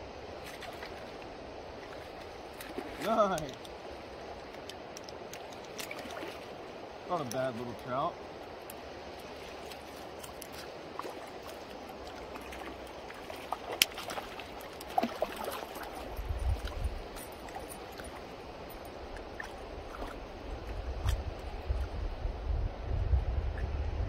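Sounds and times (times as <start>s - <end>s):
shallow river flowing: 0.0s - 23.5s
small water splashes: 0.4s - 22.0s
wind rumble on microphone: 9.2s - 24.0s.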